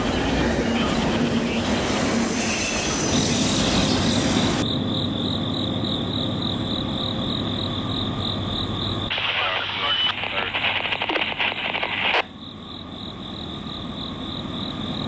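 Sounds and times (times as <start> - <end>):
freight train rolling past: 0.0 - 4.6
crickets chirping: 0.0 - 15.0.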